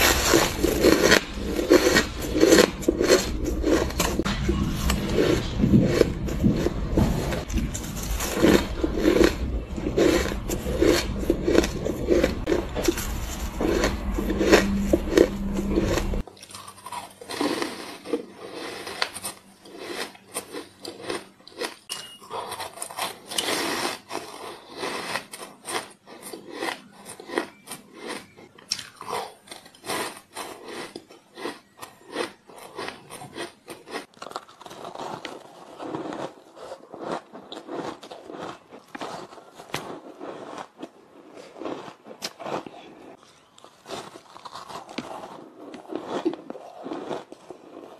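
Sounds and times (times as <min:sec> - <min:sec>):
low hum: 0:00.0 - 0:16.2
ice being chewed: 0:00.0 - 0:47.9.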